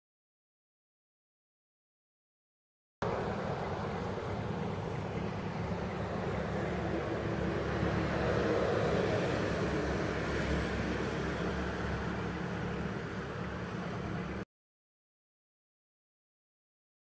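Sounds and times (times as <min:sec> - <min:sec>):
low rumble with hiss: 0:03.0 - 0:08.4.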